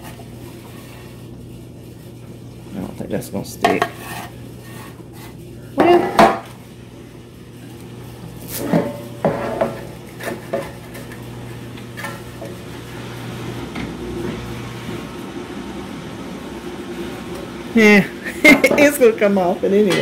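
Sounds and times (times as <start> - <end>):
spatula scraping metal pan: 3.8 - 5.4.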